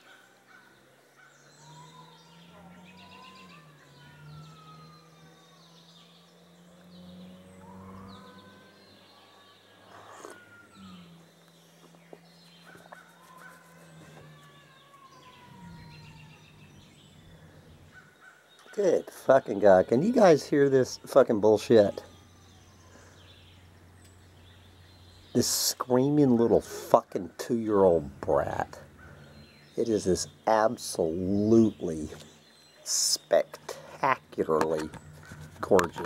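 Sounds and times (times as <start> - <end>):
distant toddler screaming and wailing: 1.6 - 6.1, 7.6 - 11.2, 13.2 - 17.4.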